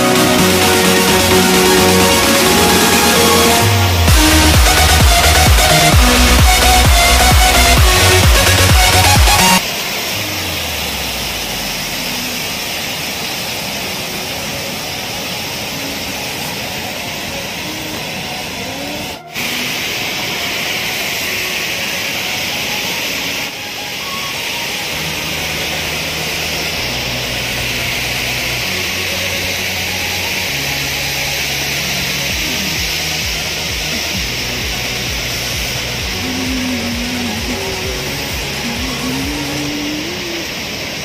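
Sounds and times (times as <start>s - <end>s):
low bass background music: 0.0s - 9.6s, 25.0s - 39.8s
waterfall rushing: 0.0s - 41.0s.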